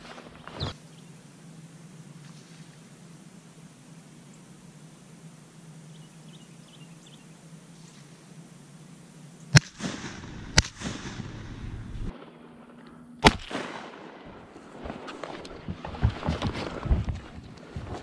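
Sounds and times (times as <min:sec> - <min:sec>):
shotgun shots echoing: 0:09.5 - 0:14.5.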